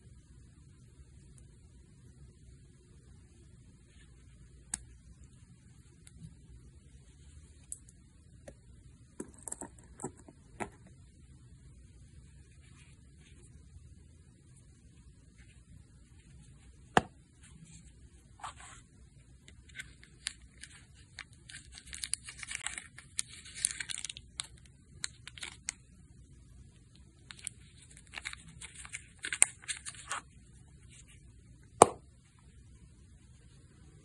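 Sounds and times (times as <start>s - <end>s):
plastic film crinkling: 19.6s - 25.8s, 27.2s - 30.3s.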